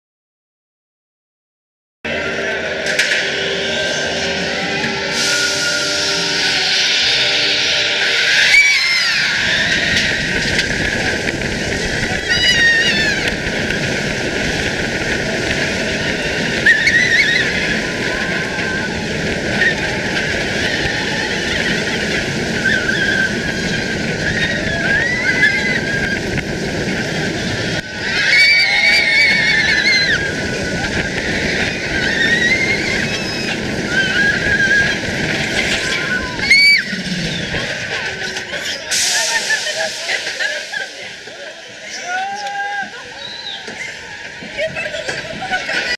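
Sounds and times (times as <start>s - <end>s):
roller coaster wind and train noise: 2.1s - 45.9s
riders screaming: 5.0s - 39.1s.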